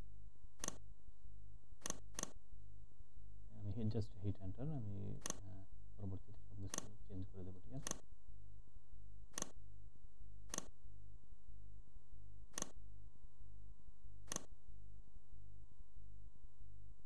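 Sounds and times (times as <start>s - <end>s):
low electrical hum: 0.0s - 17.0s
computer mouse clicking: 0.6s - 0.8s, 1.8s - 2.4s, 5.2s - 5.4s, 6.7s - 6.9s, 7.8s - 8.0s, 9.3s - 9.6s, 10.5s - 10.7s, 12.5s - 12.8s, 14.3s - 14.5s.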